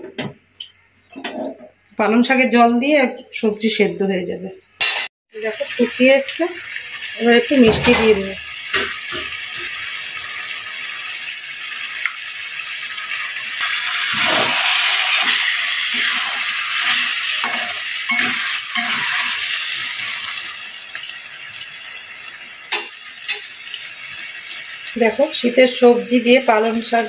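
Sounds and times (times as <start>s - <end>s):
curry bubbling and sizzling: 5.4s - 27.0s.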